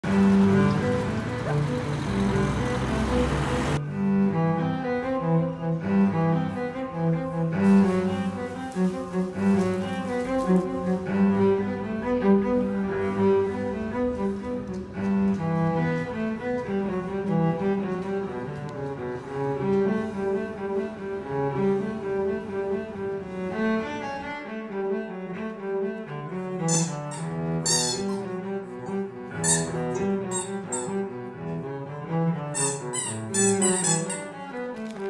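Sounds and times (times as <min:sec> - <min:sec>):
street noise: 0:00.0 - 0:03.8
low bowed string melody: 0:00.0 - 0:35.0.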